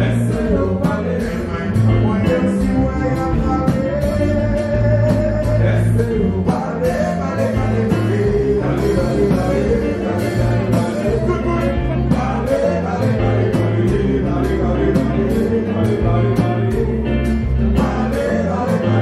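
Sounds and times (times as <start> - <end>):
bass: 0.0 - 19.0
electric guitars: 0.0 - 19.0
keyboards: 0.0 - 19.0
person singing: 0.0 - 19.0
steady drum beat: 0.0 - 19.0.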